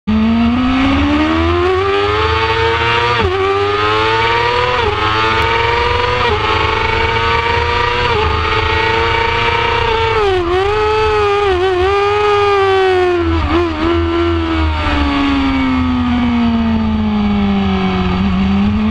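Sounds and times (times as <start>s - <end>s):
motorcycle engine at full throttle: 0.0s - 18.9s.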